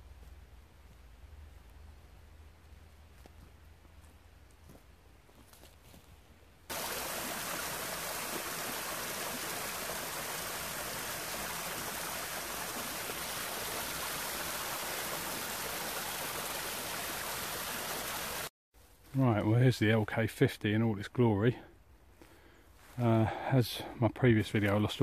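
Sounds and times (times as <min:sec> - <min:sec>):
stream rushing over rock: 0:06.7 - 0:18.5.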